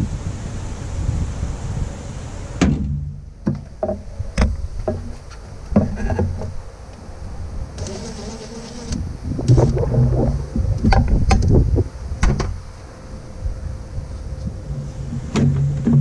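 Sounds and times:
wind on microphone: 0.0 - 2.7, 5.8 - 16.0
short low hums: 7.8 - 11.9.

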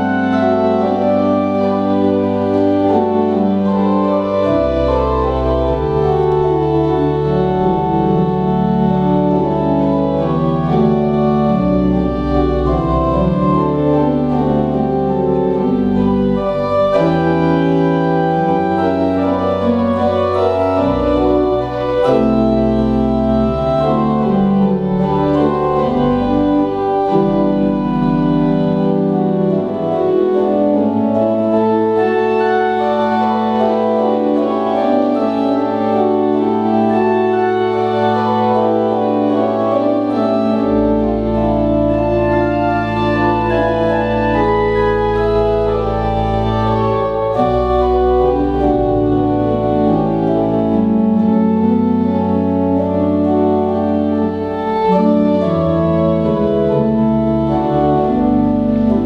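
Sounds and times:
church organ chords: 0.0 - 59.0
deep bass organ notes: 0.0 - 59.0.

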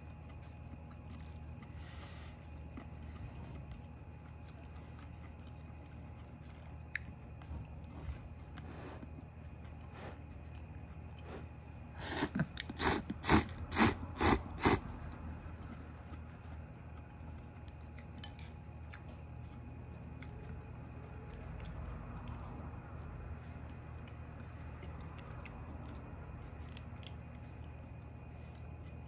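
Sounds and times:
person slurping noodles: 12.0 - 14.9.

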